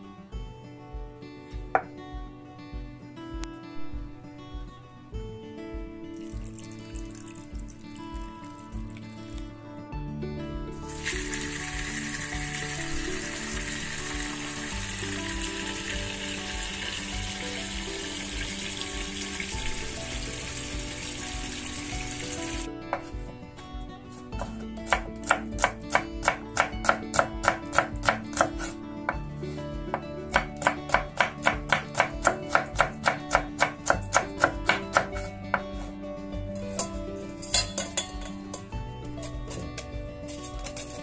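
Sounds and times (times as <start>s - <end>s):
background music: 0.0s - 41.0s
tap water running into steel bowl: 10.9s - 22.7s
knife chopping on wooden board: 24.4s - 28.8s, 29.9s - 35.9s.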